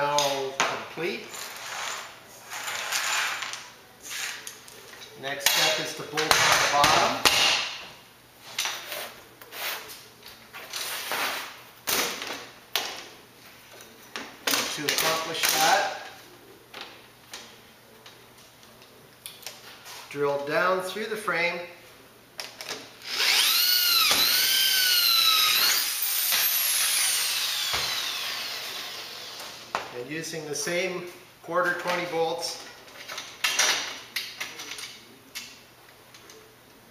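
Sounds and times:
electric drill drilling through metal: 23.0 - 29.6.

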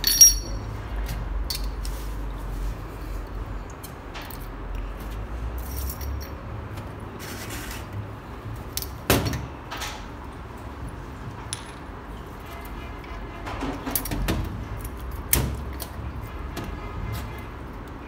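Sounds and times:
small steel parts clinking: 0.0 - 0.8, 5.6 - 6.5.

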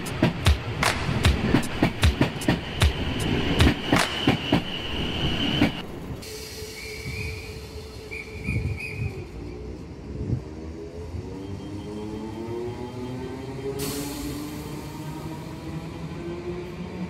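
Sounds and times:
train wheels clicking over rail joints: 0.0 - 4.8
electric train hum and whine: 0.0 - 17.0
high wheel squeal: 2.9 - 5.8.

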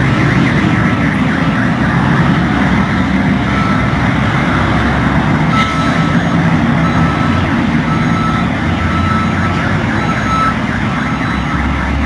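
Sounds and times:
truck engine rumble: 0.0 - 12.0.

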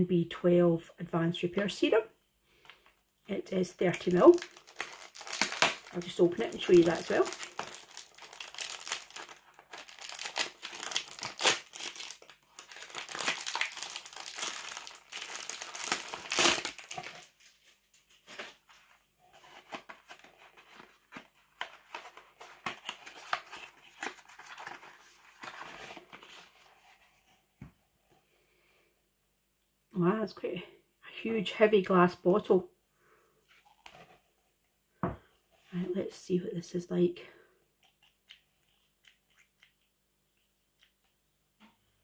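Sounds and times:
wrapping crinkling and tearing: 3.8 - 27.1.

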